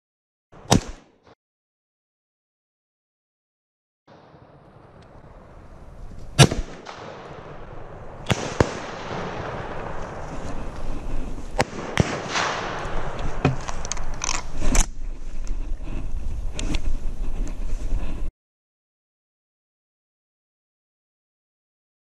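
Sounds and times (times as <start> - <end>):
rifle shot: 0.6 - 1.2, 6.3 - 14.8
rustling: 8.3 - 18.3
metallic clicks of rifle reloading: 13.6 - 14.9.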